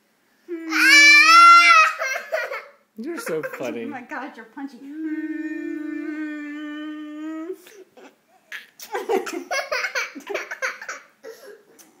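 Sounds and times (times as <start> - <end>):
giggling and laughter: 8.8 - 11.1.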